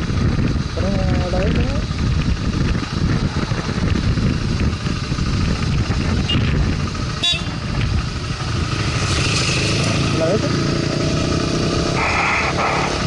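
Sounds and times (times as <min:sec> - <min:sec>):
wind buffeting microphone: 0:00.0 - 0:10.2
motorcycle engine running: 0:00.0 - 0:13.0.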